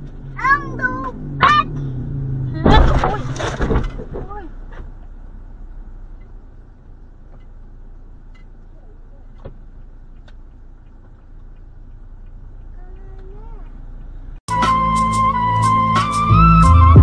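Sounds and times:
sharp clicks and knocks: 2.6 - 5.1, 9.3 - 14.1.

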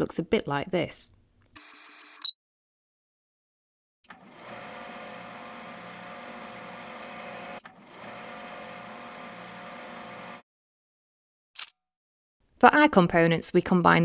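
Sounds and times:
stepper motor whirring: 4.1 - 10.4.

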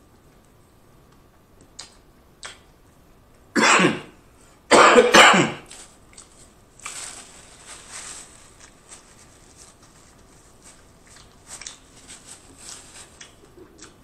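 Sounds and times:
mouth clicks: 1.6 - 2.7
man coughing: 3.6 - 4.1, 4.7 - 5.7.

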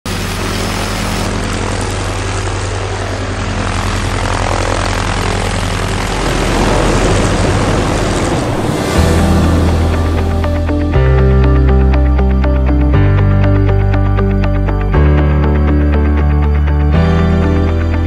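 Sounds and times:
propeller plane engine droning: 0.1 - 18.0.

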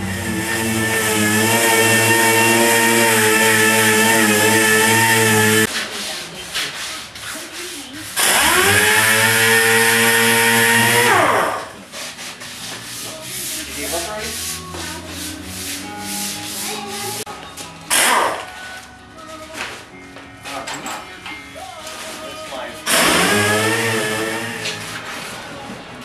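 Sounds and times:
power sander on metal: 0.0 - 5.7, 7.8 - 11.7, 22.9 - 25.0
scratchy rubbing: 1.4 - 8.2, 11.8 - 17.2.

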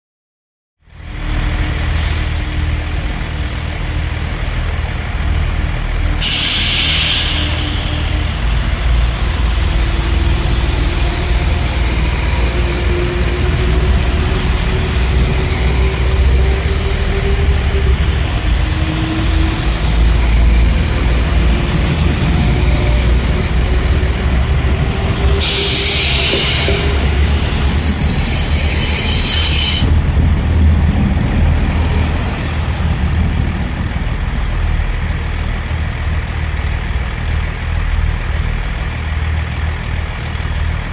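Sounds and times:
diesel train engine rumble: 0.8 - 40.9
high-pitched hissing: 6.2 - 12.4, 25.1 - 27.6.

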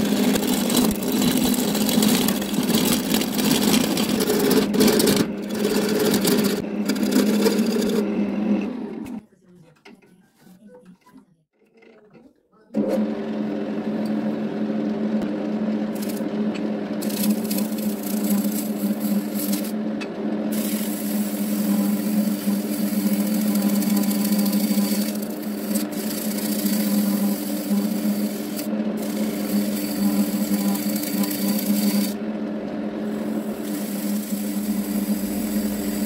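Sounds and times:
lathe motor hum: 0.0 - 9.2, 12.8 - 36.0
turning tool scraping wood: 0.0 - 9.2, 15.9 - 19.8, 20.5 - 36.0.

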